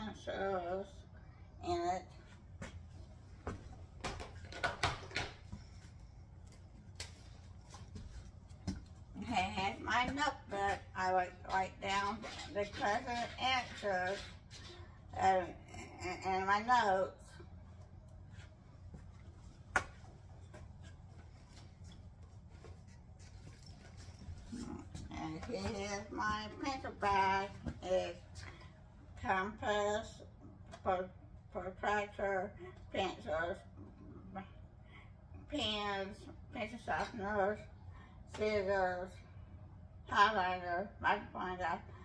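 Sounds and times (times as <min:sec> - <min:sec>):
low steady hum: 0:00.0 - 0:42.0.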